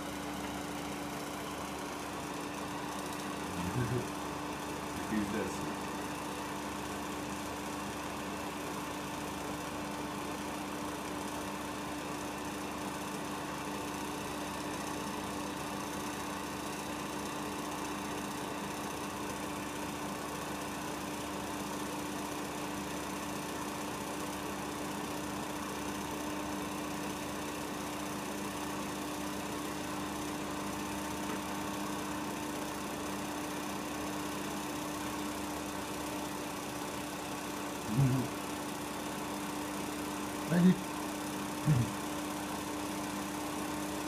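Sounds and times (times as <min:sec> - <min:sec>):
film projector whirring: 0:00.0 - 0:44.0
brief voice-like sound: 0:37.9 - 0:38.3, 0:41.7 - 0:41.9.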